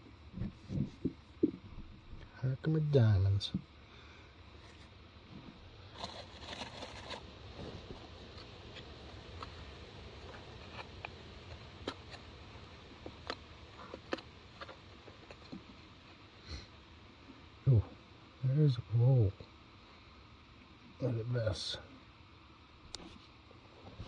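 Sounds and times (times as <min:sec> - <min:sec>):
clicks of grit and stones: 0:10.2 - 0:12.3, 0:13.0 - 0:15.8.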